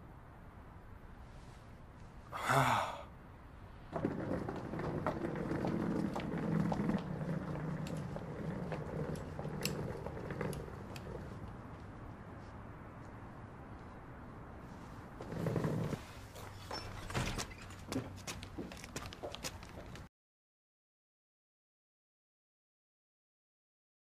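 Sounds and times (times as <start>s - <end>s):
wheeled suitcase rolling on pavement: 3.9s - 12.0s, 14.7s - 20.1s.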